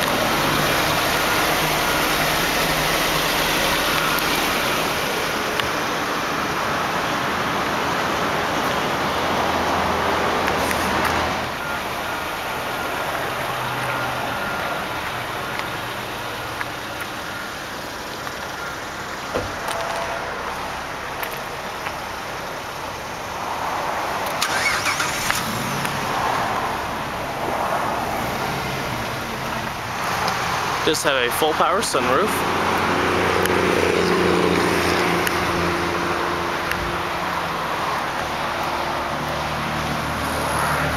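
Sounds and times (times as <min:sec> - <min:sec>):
car engine idling: 0:00.0 - 0:32.4.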